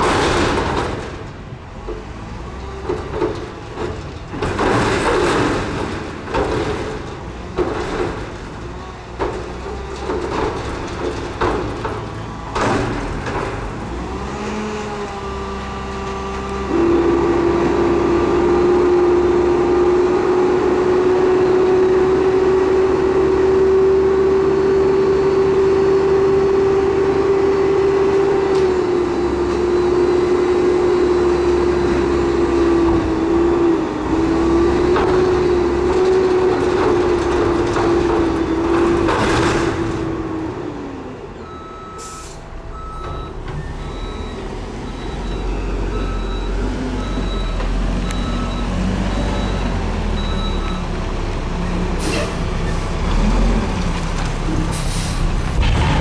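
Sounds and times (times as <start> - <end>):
truck engine at raised revs: 0.0 - 56.0
rush of noise: 55.2 - 56.0.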